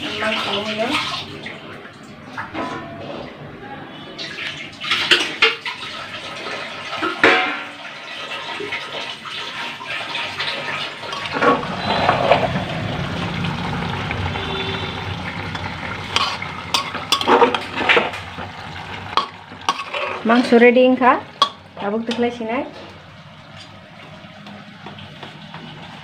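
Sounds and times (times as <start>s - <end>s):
tap water running into sink: 4.8s - 26.0s
steel dishes clattering: 11.0s - 12.6s, 15.5s - 18.2s, 19.1s - 20.4s.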